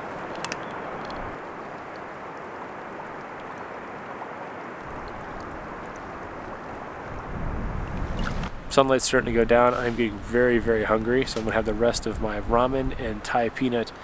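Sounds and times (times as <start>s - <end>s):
faint clicks: 0.2s - 2.1s
wind rushing: 7.0s - 10.8s.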